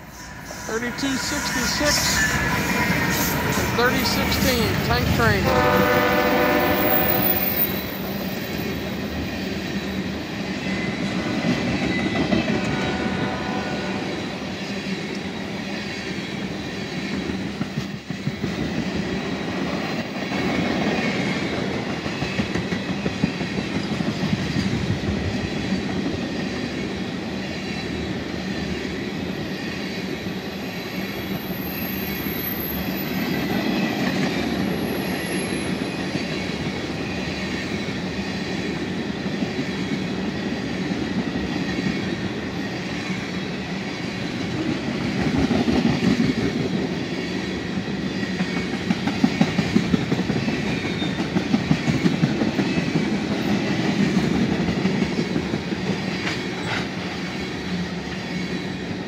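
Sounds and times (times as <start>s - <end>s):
train wheels rumbling on rail: 0.0s - 59.0s
clickety-clack over rail joints: 2.4s - 30.0s, 32.8s - 59.0s.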